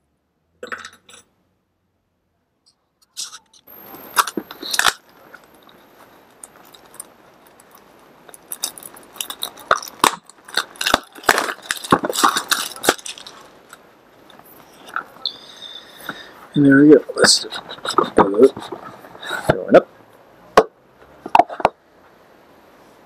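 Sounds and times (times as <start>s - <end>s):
plastic shrink-wrap crinkling and tearing: 4.0s - 13.8s.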